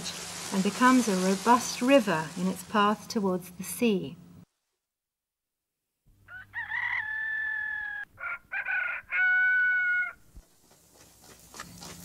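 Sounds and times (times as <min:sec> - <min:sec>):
rooster crowing: 0:06.2 - 0:10.2.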